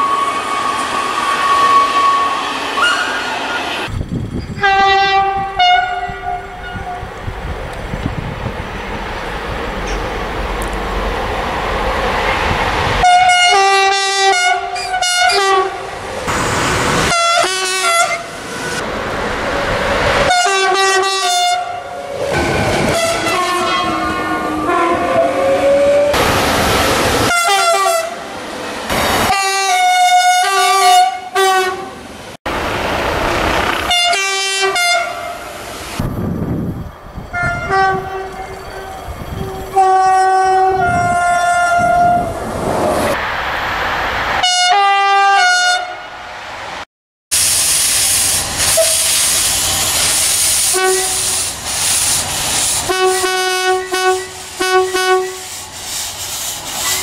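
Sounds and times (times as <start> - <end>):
trains passing: 0.0 - 57.0
two-tone locomotive horn blasts: 4.6 - 7.1, 13.0 - 15.9, 17.0 - 18.3, 20.3 - 26.2, 27.3 - 28.2, 29.2 - 32.0, 33.8 - 35.5, 37.3 - 42.3, 44.4 - 46.0, 50.7 - 51.4, 52.9 - 55.6.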